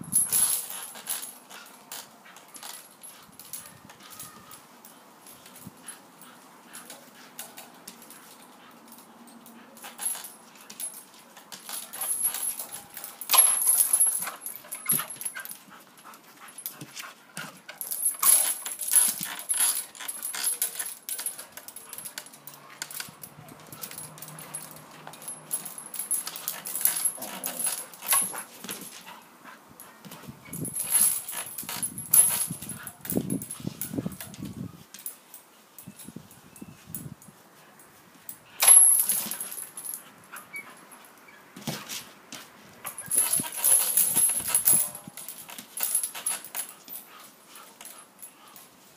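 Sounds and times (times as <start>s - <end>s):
rope toy rustling and creaking: 0.0s - 48.9s.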